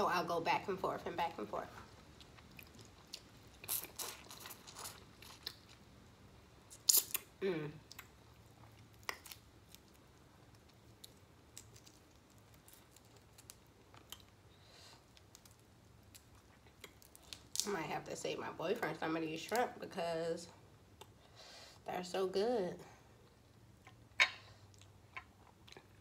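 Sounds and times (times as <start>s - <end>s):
chewing shrimp: 1.9s - 5.9s, 6.7s - 17.6s
shrimp shells crackling as peeled: 6.7s - 7.3s, 8.8s - 14.4s, 15.1s - 17.7s.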